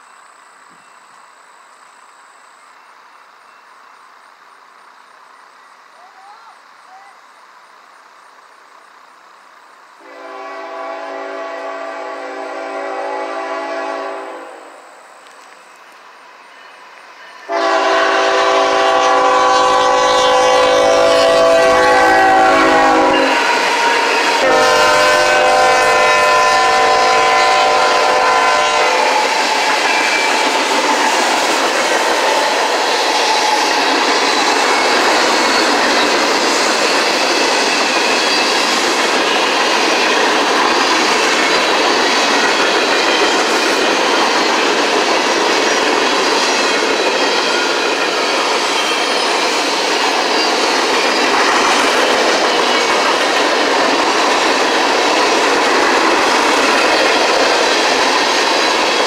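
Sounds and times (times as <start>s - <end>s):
train cars rolling and clattering: 0.0s - 6.0s, 15.1s - 59.0s
locomotive air horn blasts: 10.0s - 14.8s, 17.5s - 29.3s.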